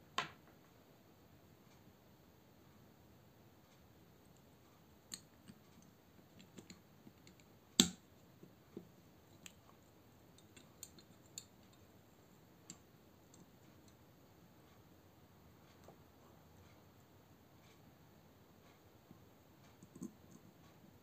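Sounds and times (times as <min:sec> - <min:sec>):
folding knife clicks and taps: 0:06.4 - 0:08.0.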